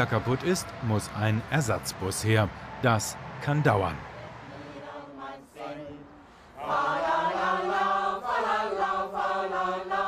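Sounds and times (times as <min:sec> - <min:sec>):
choir singing: 0:04.5 - 0:10.0.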